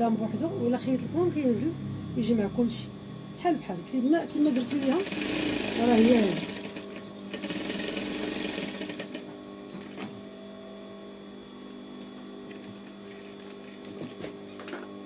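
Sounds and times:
motor hum: 0:00.0 - 0:15.0
sewing machine stitching: 0:04.4 - 0:09.2.

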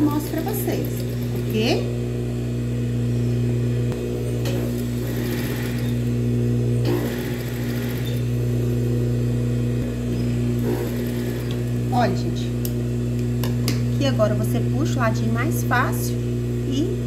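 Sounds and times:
sewing machine motor humming: 0:00.0 - 0:02.2, 0:03.8 - 0:09.2, 0:09.8 - 0:12.9.

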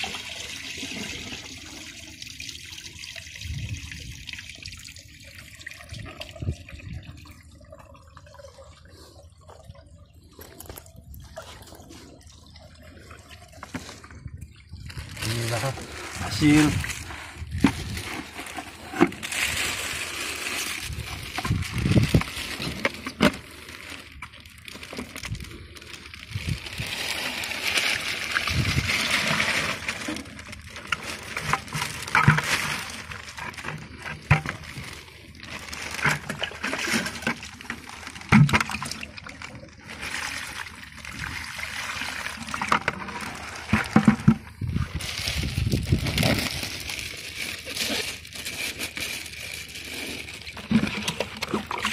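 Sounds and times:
water sloshing and splashing: 0:00.0 - 0:51.9
plastic bag crinkling: 0:14.9 - 0:51.9.

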